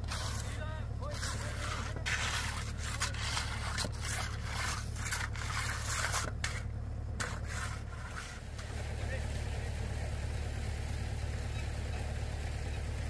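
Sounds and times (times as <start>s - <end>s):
tool scraping rough surface: 0.0s - 8.9s
low engine hum: 0.0s - 13.0s.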